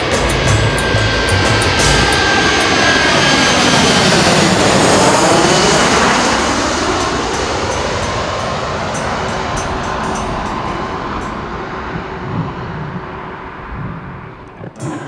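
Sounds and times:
music beat: 0.0s - 11.7s
jet-like rushing whoosh: 0.0s - 13.3s.

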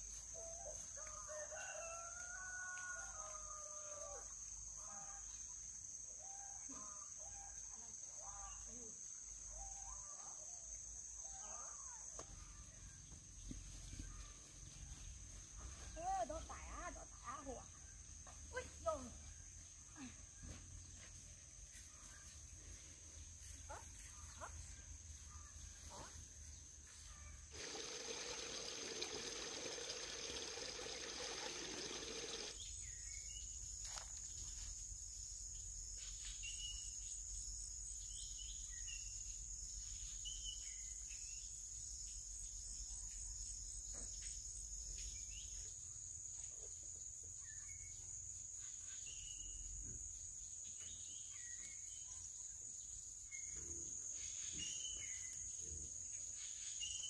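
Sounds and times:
high-pitched insect chorus: 22.7s - 57.0s.

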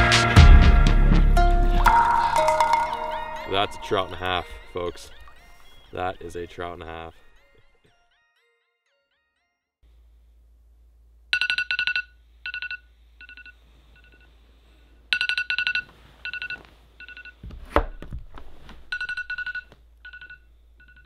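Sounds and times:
smartphone alarm beeping: 1.9s - 5.8s, 11.4s - 14.3s, 15.1s - 17.4s.

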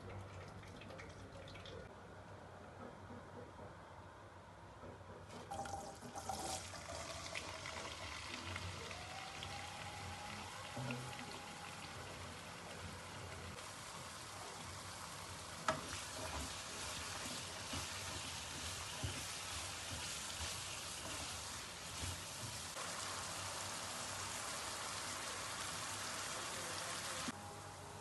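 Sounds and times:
potatoes sizzling in a pan: 7.5s - 27.4s
wooden spatula knocking on pan: 17.7s - 21.3s.

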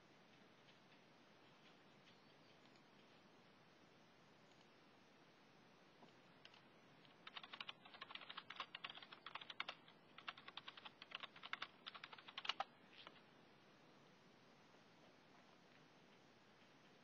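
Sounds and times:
computer keyboard typing: 6.4s - 13.1s.

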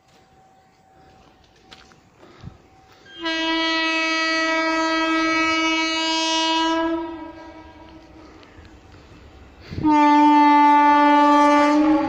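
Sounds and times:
locomotive horn blast: 3.0s - 8.3s, 9.7s - 12.0s.

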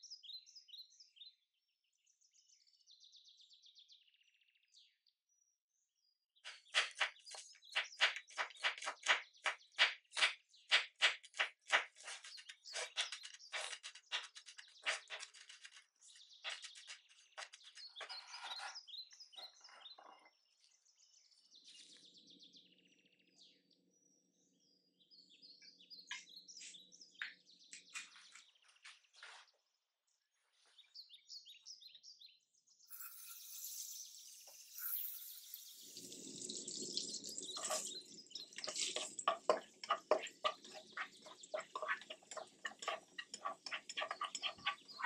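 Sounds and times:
light high sounds: 32.9s - 44.8s.

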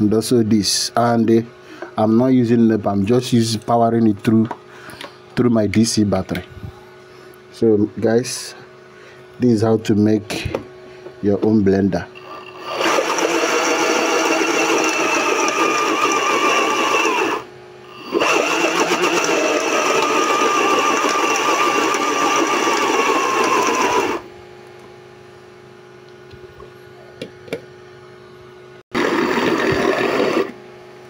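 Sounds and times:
faint steady hum: 0.0s - 12.8s
blender motor whirring: 12.2s - 24.3s, 28.9s - 30.6s.

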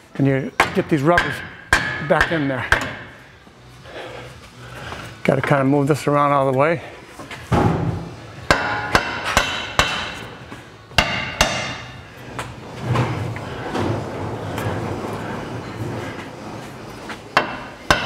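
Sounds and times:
hammer striking metal: 0.6s - 3.2s, 8.5s - 10.3s, 11.0s - 12.0s, 17.4s - 18.0s.

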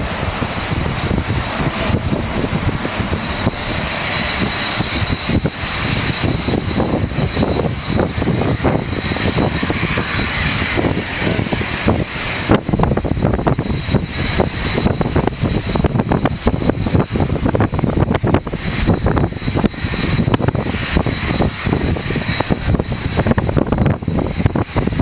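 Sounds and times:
jet engines at takeoff: 0.0s - 25.0s
wind buffeting microphone: 0.0s - 25.0s.

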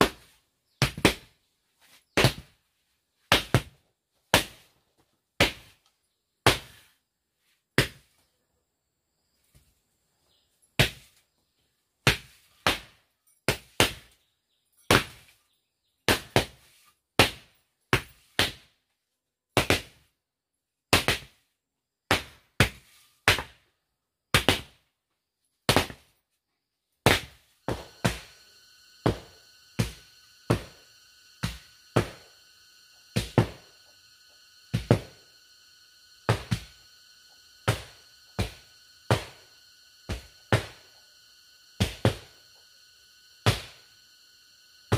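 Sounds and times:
high ringing hum: 27.4s - 44.9s.

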